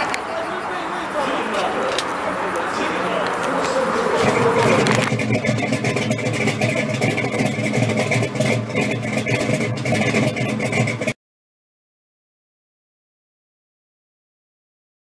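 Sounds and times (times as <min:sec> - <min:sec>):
car engine idling: 0:00.0 - 0:11.2.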